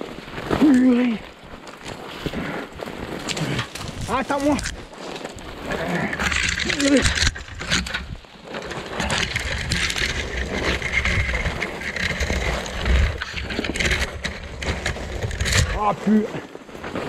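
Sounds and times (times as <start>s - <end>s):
leaves and brush crackling: 0.0s - 17.0s
microphone wind buffeting: 8.9s - 15.8s.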